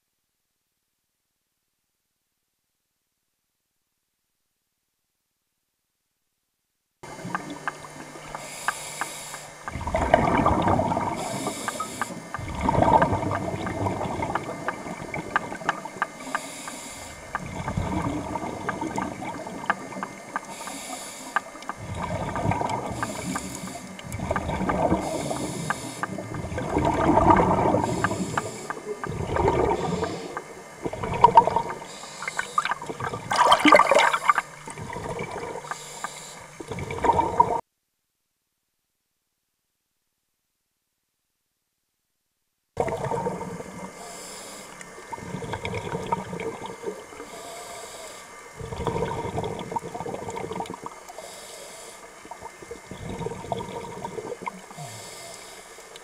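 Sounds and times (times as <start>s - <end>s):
bubbling exhaust on exhale: 7.0s - 37.6s, 42.8s - 56.0s
regulator hiss on inhale: 7.9s - 9.8s, 10.9s - 12.4s, 15.1s - 33.0s, 33.7s - 36.8s, 43.5s - 56.0s.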